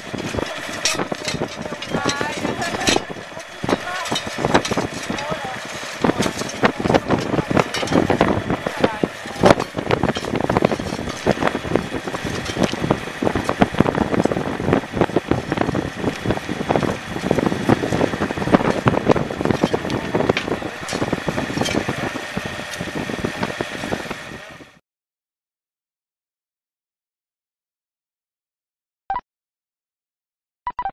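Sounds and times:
excavator engine running: 0.0 - 24.8
spades scraping in gravel: 0.1 - 11.4.

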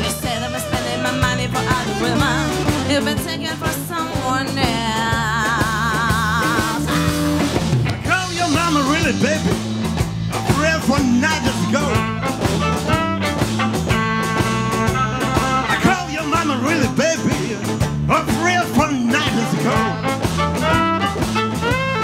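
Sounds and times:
woman singing with vibrato: 0.0 - 7.1
electric guitar: 0.0 - 22.0
rock band backing: 0.0 - 22.0
electric violin sliding notes: 10.3 - 17.8, 19.1 - 22.0.

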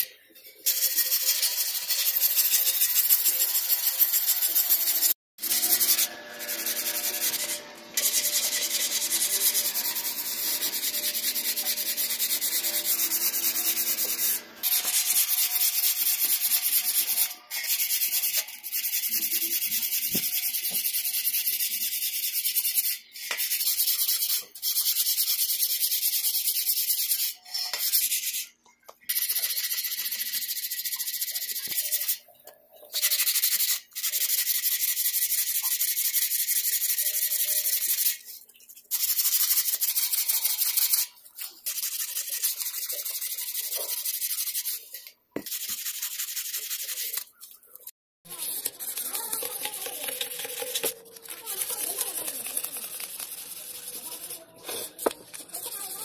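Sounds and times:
scrubbing rusted metal: 48.3 - 56.0.

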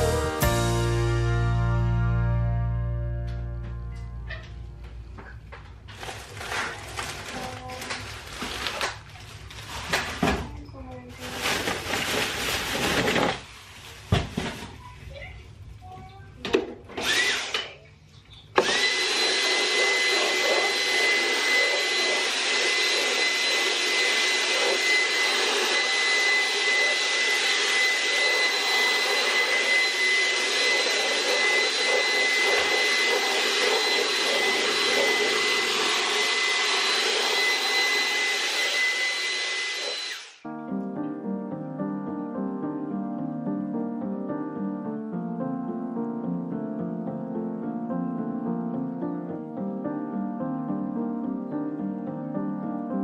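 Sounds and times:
vacuum cleaner high whine: 16.9 - 17.7, 18.6 - 40.5.

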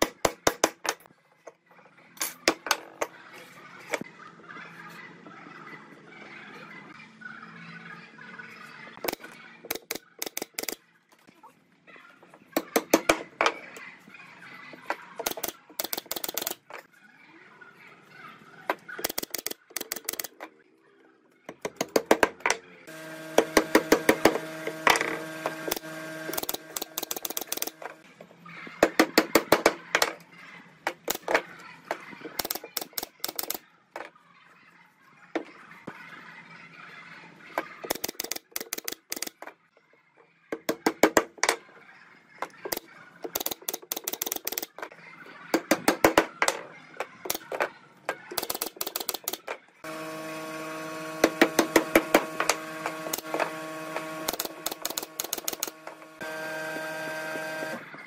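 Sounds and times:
pneumatic nailer firing: 23.3 - 27.9, 51.2 - 56.9.

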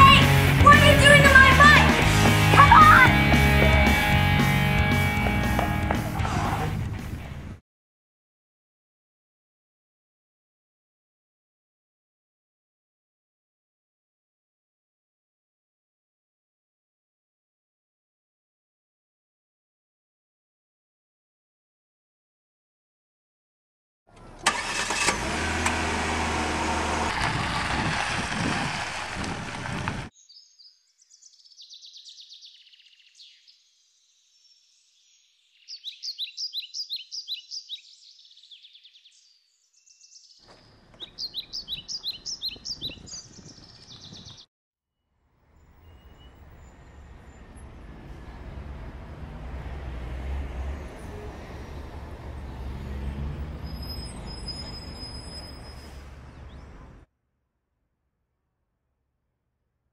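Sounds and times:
car engine starting and running: 24.1 - 29.8
car driving with road noise: 24.1 - 30.1, 45.4 - 57.1
small birds chirping: 30.2 - 44.5.

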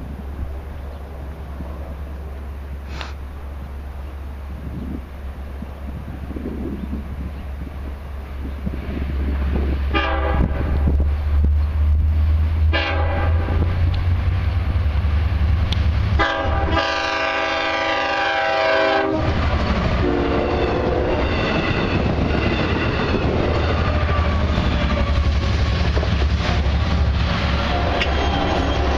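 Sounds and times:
train horn blasts: 9.9 - 10.9, 12.7 - 13.8, 16.2 - 19.4, 20.0 - 21.6, 22.7 - 25.3
train wheels clattering on rails: 19.3 - 28.9.

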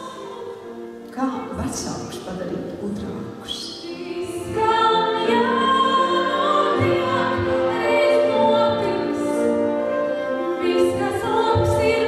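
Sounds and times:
woman singing into a microphone: 3.4 - 9.5, 10.4 - 12.0.

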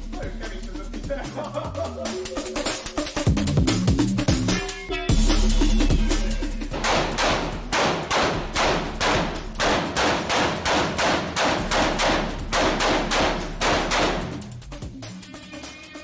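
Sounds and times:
rifle shots echoing indoors: 6.8 - 14.4.

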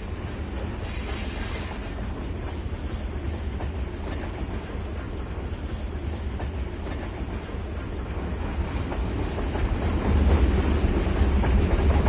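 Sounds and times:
steam train rumbling: 0.0 - 12.0.

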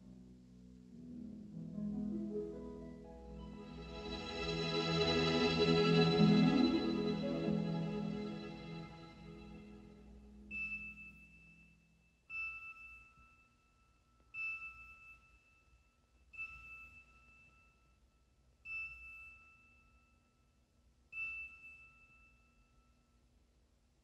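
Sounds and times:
held low orchestral note: 3.4 - 10.1
soft bell-like chime: 3.5 - 10.0, 10.6 - 20.6, 21.2 - 23.2.

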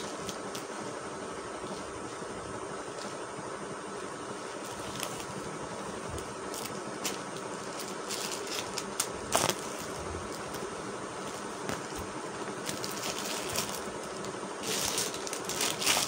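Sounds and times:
steady background hum: 0.0 - 16.0
fabric and plastic packaging rustling: 4.3 - 16.0.

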